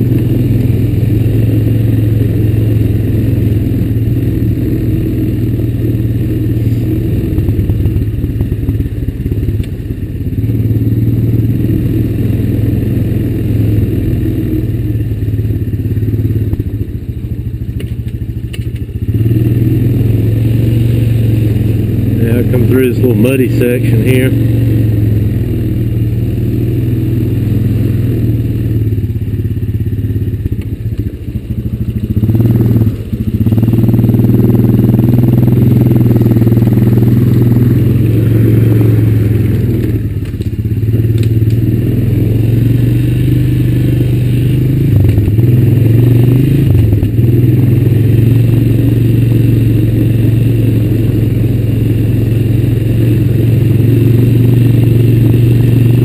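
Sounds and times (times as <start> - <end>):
atv engine running: 0.0 - 56.0
clatter from rough ground: 17.7 - 19.0, 39.7 - 41.7.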